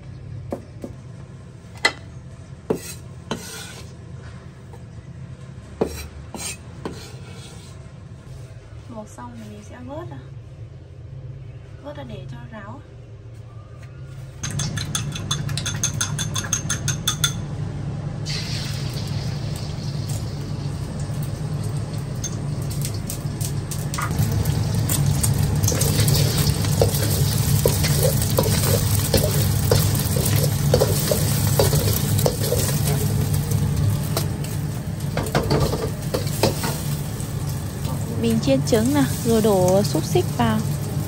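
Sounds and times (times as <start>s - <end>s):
metal spatula scraping wok: 2.7s - 4.0s, 5.8s - 7.8s, 25.7s - 33.3s
egg sizzling in hot oil: 18.2s - 41.0s.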